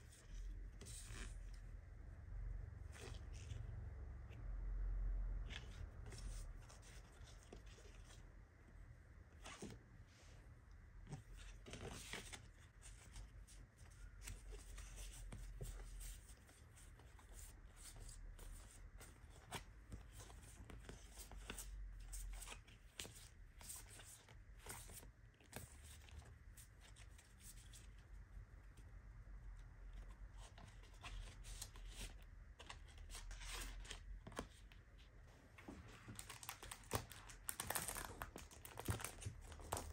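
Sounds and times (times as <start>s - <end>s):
postcards rustling and flicking: 35.6s - 39.9s.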